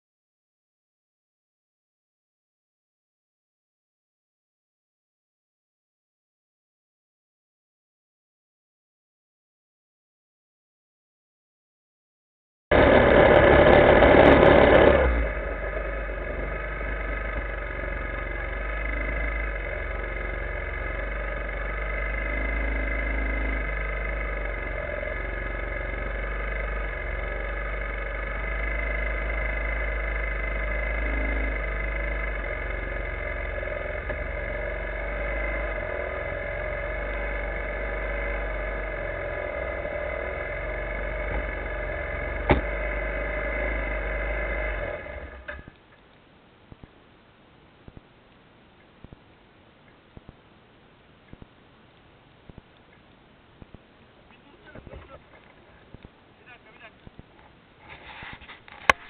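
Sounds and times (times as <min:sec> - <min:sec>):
quad engine idling: 0:12.7 - 0:46.0, 0:54.2 - 0:59.0.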